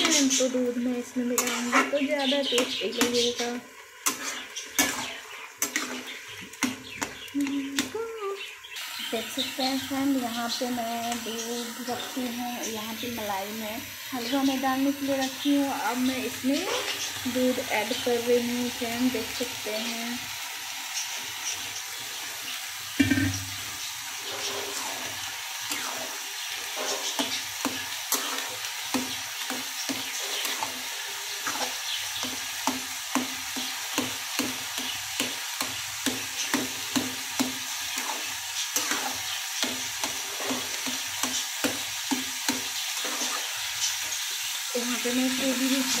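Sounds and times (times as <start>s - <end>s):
food sizzling: 0.0s - 46.0s
metal spatula scraping pan: 1.3s - 6.6s, 23.0s - 32.3s, 37.8s - 41.5s
spatula knocking on pan: 23.0s - 23.6s, 32.2s - 37.6s.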